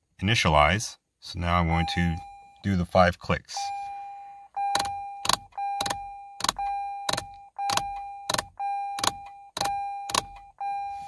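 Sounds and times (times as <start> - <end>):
car warning chime: 1.6 - 11.0.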